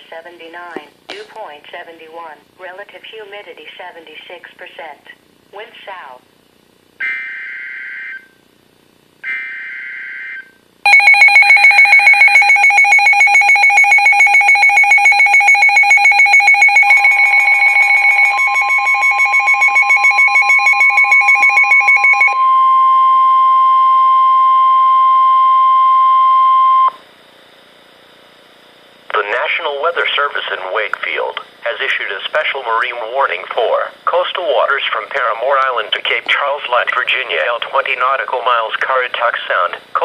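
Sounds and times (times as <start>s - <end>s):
rapid alarm beeping: 7.0s - 8.3s, 9.2s - 27.0s
steady warning tone: 9.2s - 27.0s.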